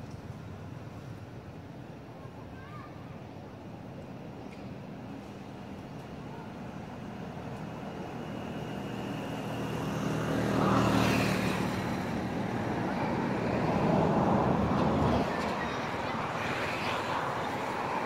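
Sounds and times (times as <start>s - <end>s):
passing vehicle engine: 8.6s - 18.0s.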